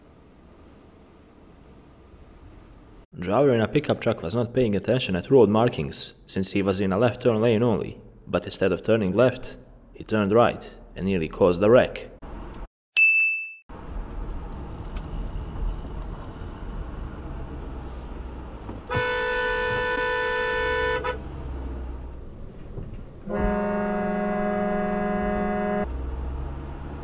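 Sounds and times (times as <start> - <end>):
car road noise: 13.7 - 27.0
car horn blasts: 18.9 - 21.3, 23.3 - 25.9.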